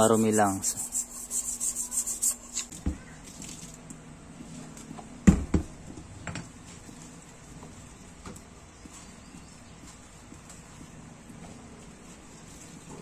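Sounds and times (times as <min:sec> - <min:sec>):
wet sponge scrubbing metal: 0:00.0 - 0:02.7.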